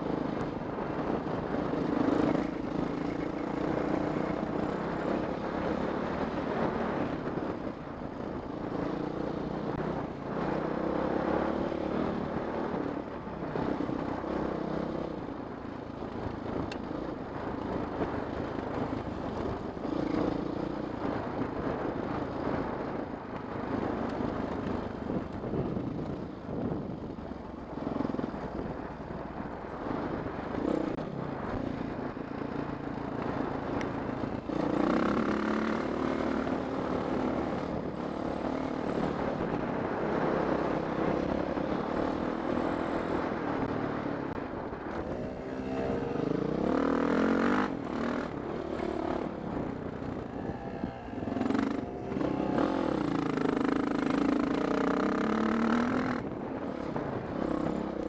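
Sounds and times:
dirt bike engine revving: 33.6s - 58.0s.

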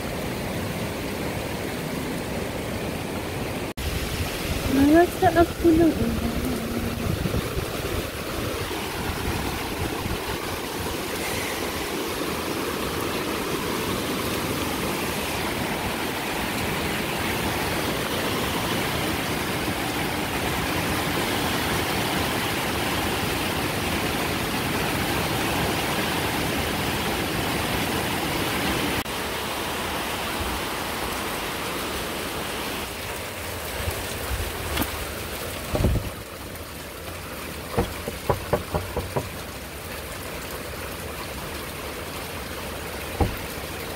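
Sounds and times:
water rushing: 0.0s - 43.9s
short knocks: 37.8s - 39.4s, 43.2s - 43.6s.

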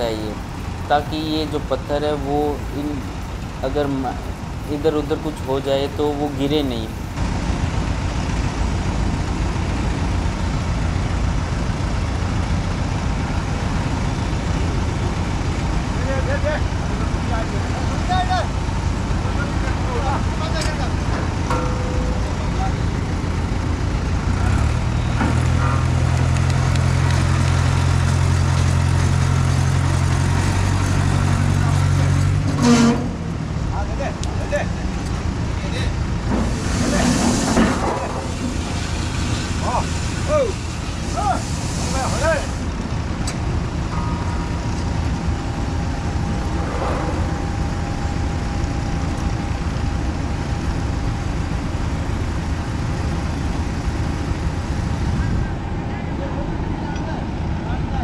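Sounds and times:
crane engine humming: 0.0s - 58.0s
faint whine: 42.8s - 51.2s.

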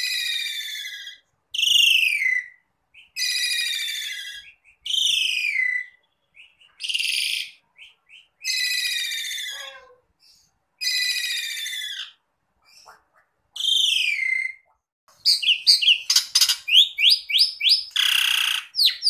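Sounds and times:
starling singing: 0.0s - 10.0s, 10.8s - 19.0s.

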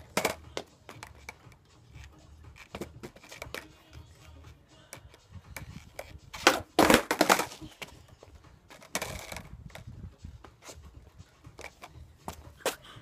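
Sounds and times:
skateboard pop: 0.0s - 1.4s, 5.6s - 7.9s
skateboard rattle: 0.0s - 1.5s, 2.5s - 3.7s, 5.6s - 7.9s, 8.7s - 9.6s
skateboard clattering and rolling: 0.0s - 3.9s, 5.6s - 8.0s, 8.7s - 9.9s.

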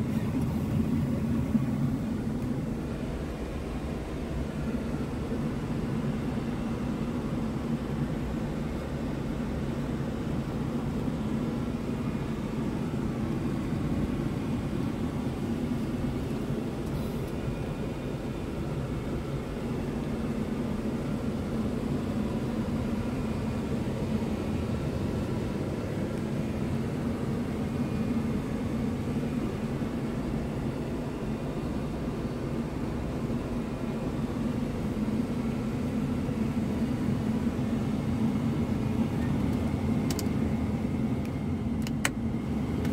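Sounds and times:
truck diesel engine idling: 0.0s - 6.4s.

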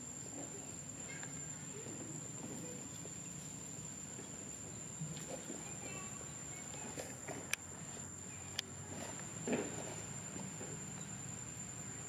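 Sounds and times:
faint rustles: 0.0s - 12.0s
insect drone: 0.0s - 12.0s.

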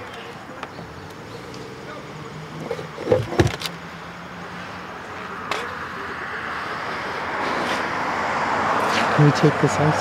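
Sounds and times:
car road noise approaching: 0.0s - 10.0s
engine parts clicking and knocking: 2.5s - 3.9s.

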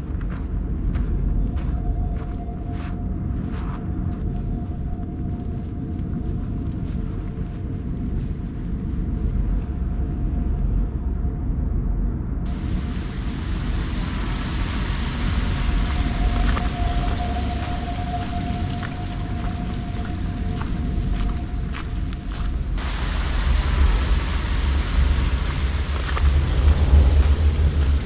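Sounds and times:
faint steady hum: 0.0s - 28.0s
wind rumble on microphone: 0.0s - 28.0s
water running down a channel: 12.5s - 21.5s, 22.8s - 28.0s.

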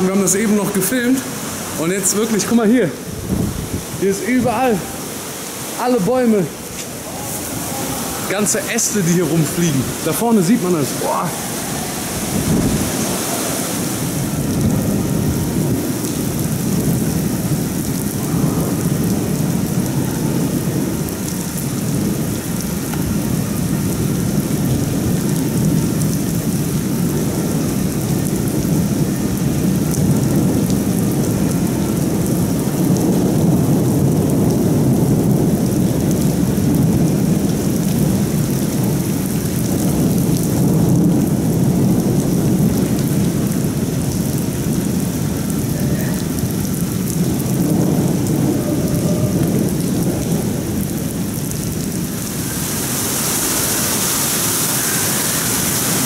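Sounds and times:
heavy rain on pavement: 0.0s - 56.0s
wind gusts buffeting microphone: 0.0s - 56.0s.

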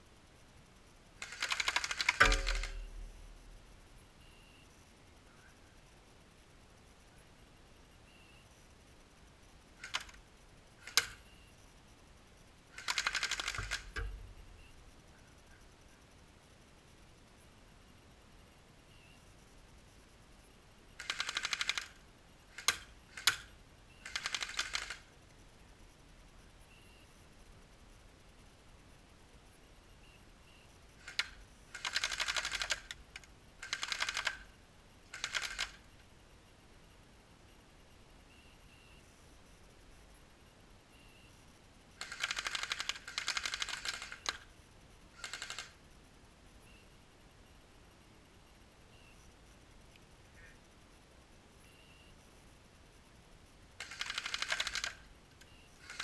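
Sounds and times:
airsoft gun shots: 1.2s - 3.4s.

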